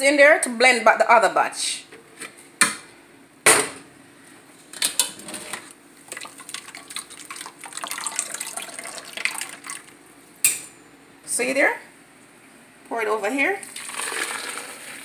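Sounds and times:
juice pouring and splashing: 0:06.0 - 0:10.0, 0:13.6 - 0:15.0.

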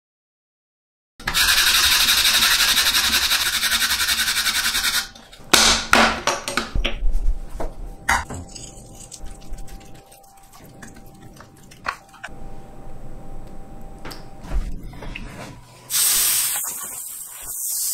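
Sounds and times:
grating on plastic grater: 0:01.4 - 0:05.1.

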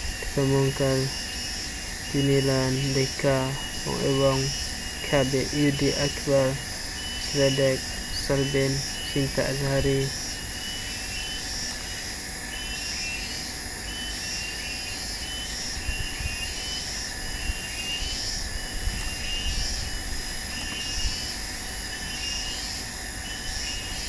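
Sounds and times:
steady hiss: 0:00.0 - 0:14.3.

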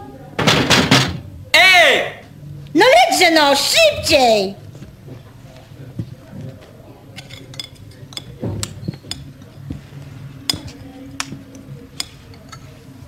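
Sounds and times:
tableware clinking: 0:07.1 - 0:09.6.

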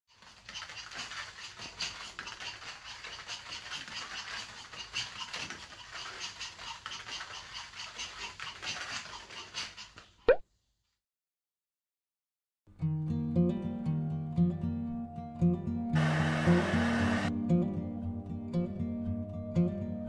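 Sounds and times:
dog nails clicking on mat: 0:00.2 - 0:10.1.

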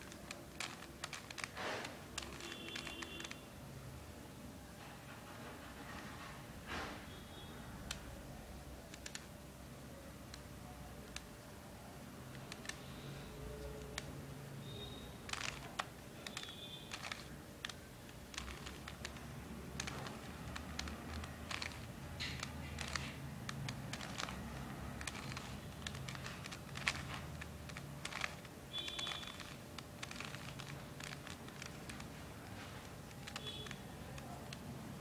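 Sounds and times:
puzzle cube plastic clicks: 0:00.0 - 0:03.4, 0:08.8 - 0:09.4, 0:10.2 - 0:11.4, 0:12.3 - 0:12.9, 0:13.5 - 0:35.0.

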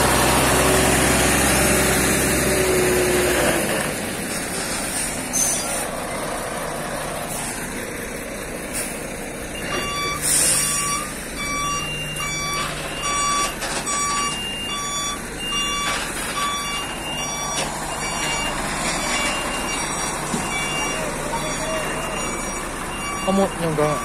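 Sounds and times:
diesel engine running: 0:00.0 - 0:24.0
truck reversing alarm beeping: 0:07.2 - 0:24.0.

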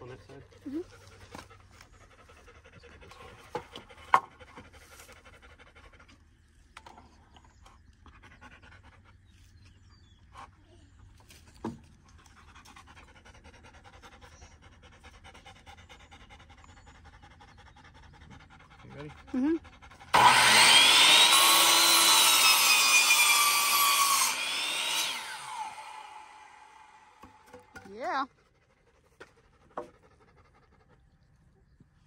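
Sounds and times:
dog panting: 0:00.0 - 0:06.3, 0:07.6 - 0:09.5, 0:12.0 - 0:20.2, 0:28.4 - 0:31.4.

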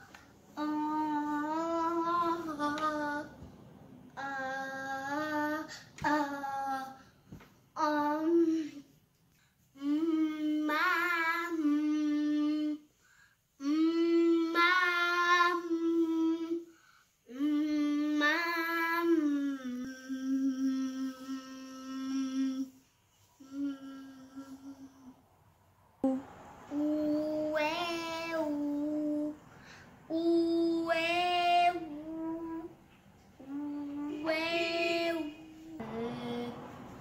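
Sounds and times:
breaths: 0:05.7 - 0:06.0, 0:09.3 - 0:09.7, 0:12.9 - 0:13.5, 0:16.7 - 0:17.3, 0:29.4 - 0:30.1
boy singing held notes: 0:17.3 - 0:25.2, 0:26.0 - 0:37.0.

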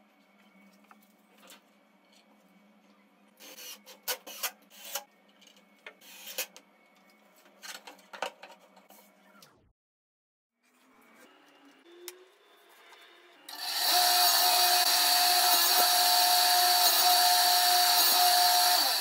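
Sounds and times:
cordless drill driving screws: 0:13.5 - 0:19.0.

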